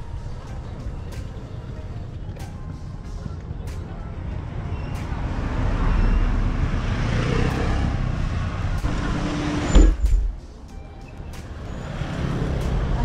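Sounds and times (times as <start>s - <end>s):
vehicle passing by: 5.1s - 9.9s
heavy low thump: 9.7s - 10.5s.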